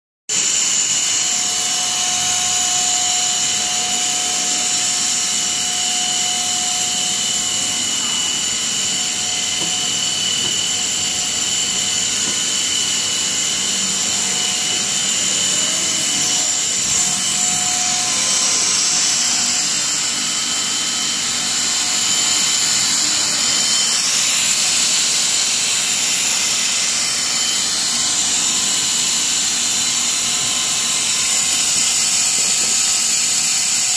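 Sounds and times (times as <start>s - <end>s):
high-pitched whining tones: 0.3s - 33.2s
mechanical whir: 0.3s - 33.9s.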